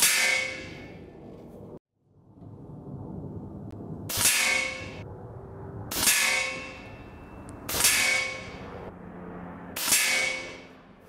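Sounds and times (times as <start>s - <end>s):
air rifle shots: 4.1s - 5.0s, 5.9s - 6.9s, 7.7s - 8.6s, 9.8s - 10.6s
metallic ring: 5.9s - 8.8s.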